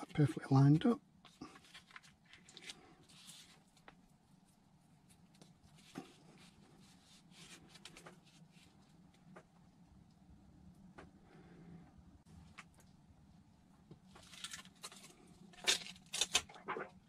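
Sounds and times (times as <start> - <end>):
faint rustles of handling foam: 0.0 - 10.1.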